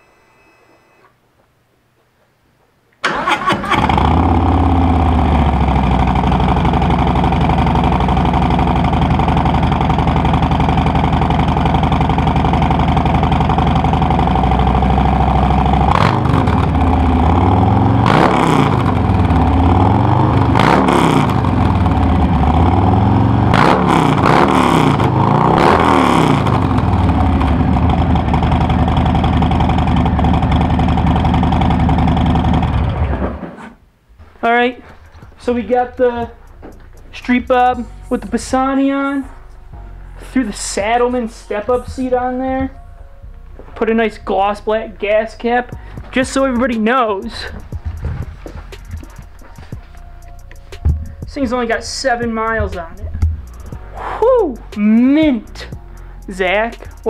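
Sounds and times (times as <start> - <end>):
motorcycle throttle blips: 3.1 - 33.2
motorcycle engine idling: 3.8 - 33.2, 35.4 - 39.1, 44.4 - 57.0.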